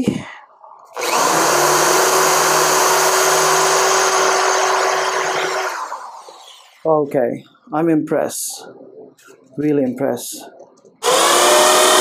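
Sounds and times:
electric drill whining: 0:00.9 - 0:06.8, 0:11.0 - 0:12.0
drill bit boring into wood: 0:01.0 - 0:06.8, 0:11.0 - 0:12.0.

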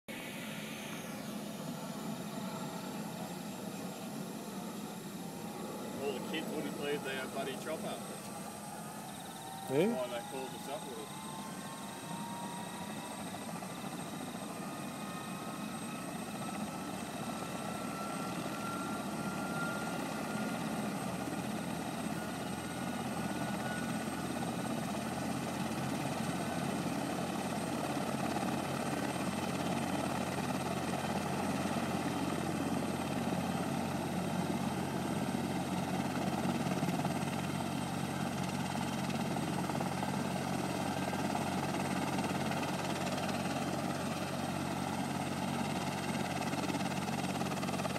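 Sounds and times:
thin rising whine: 0:00.1 - 0:03.0, 0:05.5 - 0:22.0
helicopter rotor and engine drone: 0:00.1 - 0:47.9.

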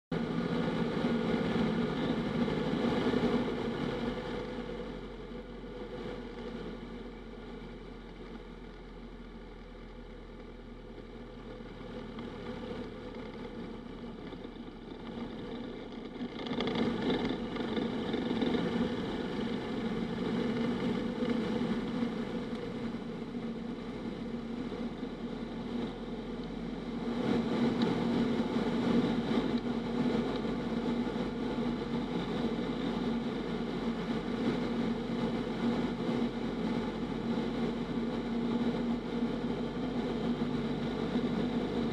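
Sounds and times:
plane engine and propeller droning: 0:00.1 - 0:41.9.

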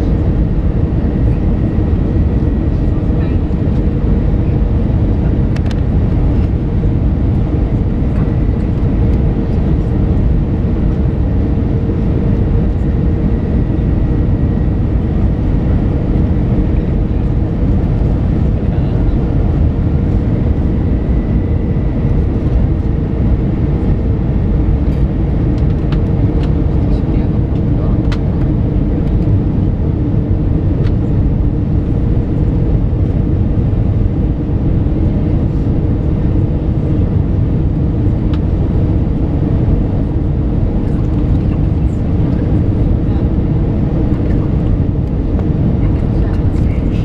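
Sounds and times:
constant low hum: 0:00.0 - 0:47.0
jet engine noise: 0:00.0 - 0:47.0.

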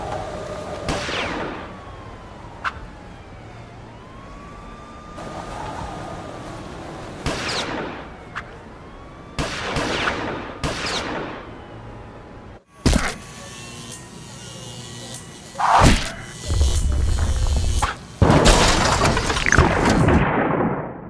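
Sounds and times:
faint wavering siren-like wail: 0:00.0 - 0:18.0.

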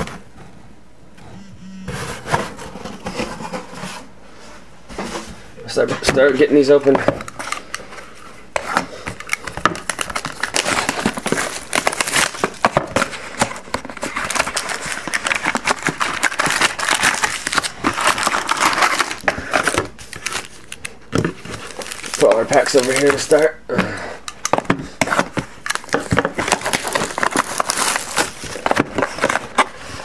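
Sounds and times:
plastic wrapping crinkling and tearing: 0:06.6 - 0:23.6, 0:24.4 - 0:30.0.

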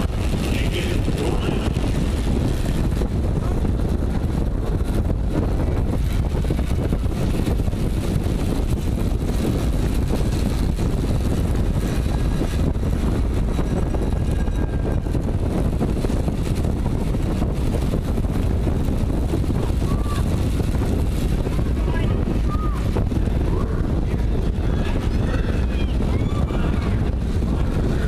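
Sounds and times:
bike rolling on wooden boards: 0:00.0 - 0:21.8
wind rushing on microphone: 0:00.0 - 0:28.0.

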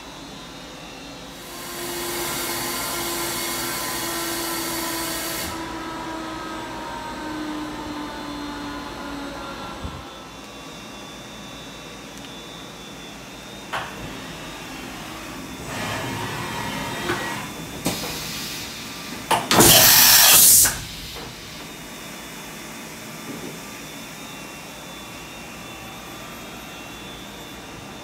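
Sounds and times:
machine background hum: 0:00.0 - 0:28.0
machine slides whirring: 0:13.8 - 0:21.9
air hiss: 0:17.9 - 0:21.6.

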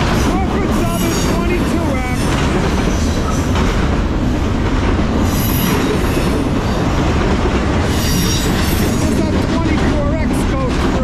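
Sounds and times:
freight train wheels rumbling: 0:00.0 - 0:11.0
high wheel squeal: 0:07.9 - 0:09.0.

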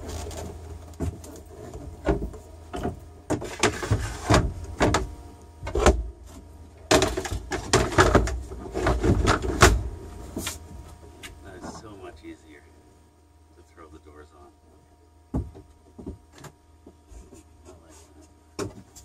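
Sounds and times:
wooden boards knocking and scraping: 0:01.0 - 0:06.1, 0:06.9 - 0:09.8.

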